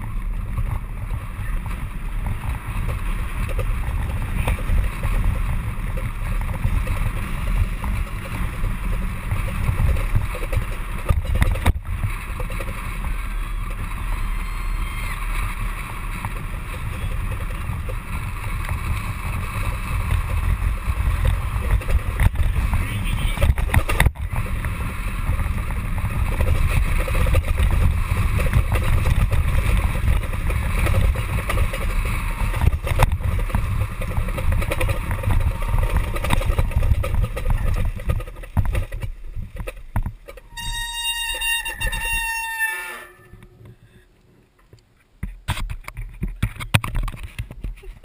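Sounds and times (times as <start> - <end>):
wind and tyre rumble: 0.0 - 48.0
high brake squeal: 40.5 - 44.0.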